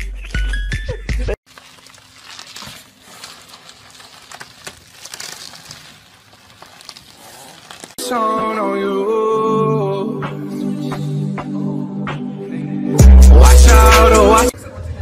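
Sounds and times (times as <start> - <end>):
bubble wrap crinkling: 1.4 - 8.0
loud music: 9.6 - 14.5.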